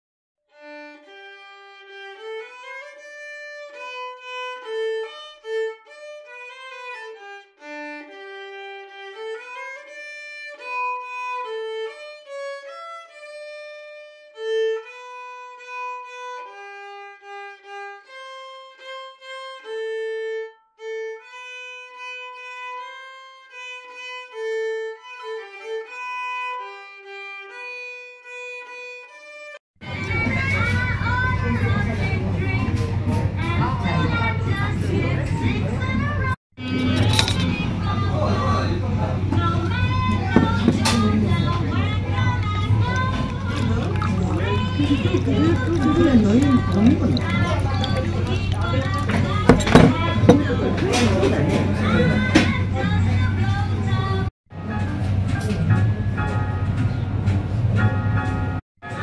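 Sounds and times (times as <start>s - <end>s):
solo violin melody: 0.5s - 31.9s, 39.4s - 51.2s.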